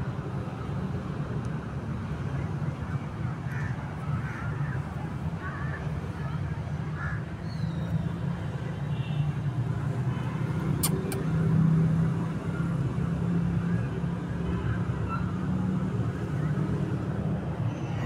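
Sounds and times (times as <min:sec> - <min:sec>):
road traffic rumble: 0:00.0 - 0:18.0
short high clicks: 0:10.8 - 0:11.3.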